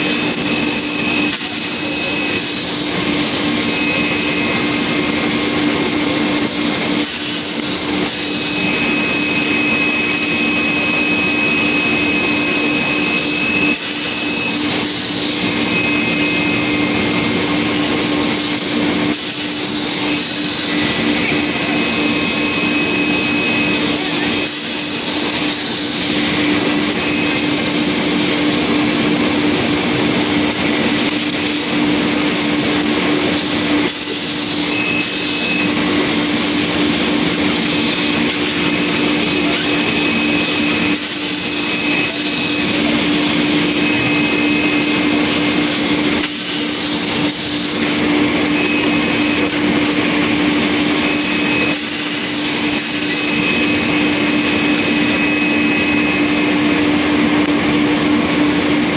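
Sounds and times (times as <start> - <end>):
machinery rushing noise: 0.0 - 58.9
faint high whine: 8.1 - 18.4.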